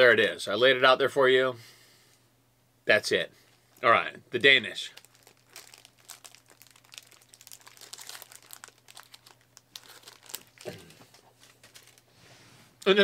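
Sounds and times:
plastic wrapper crinkling: 3.7s - 12.1s.

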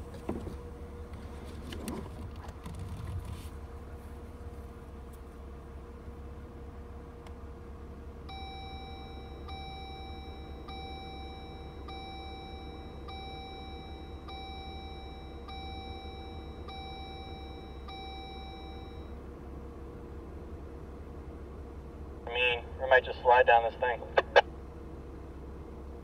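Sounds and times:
car engine idling: 0.0s - 26.0s
car warning chime dinging: 8.2s - 19.4s.

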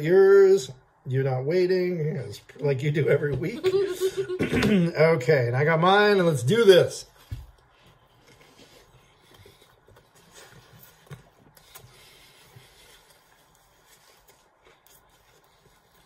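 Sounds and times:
people chewing: 7.2s - 16.0s
mouth and rubbing sounds: 7.6s - 16.0s.

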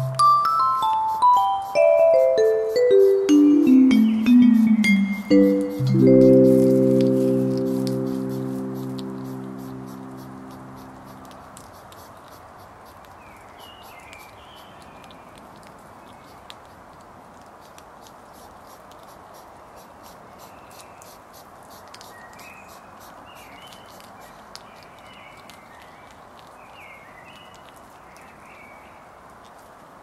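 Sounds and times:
background music: 0.0s - 11.0s
steady background hiss: 0.0s - 14.9s
hedgehog snuffling and chewing: 0.0s - 30.0s.

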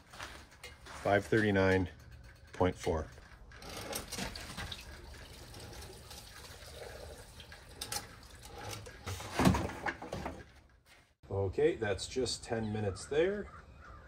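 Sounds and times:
fuel trickling into can: 3.7s - 9.1s.

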